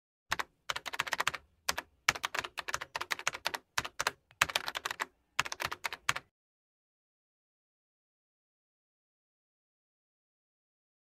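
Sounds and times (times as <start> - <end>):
keyboard typing: 0.3 - 6.3.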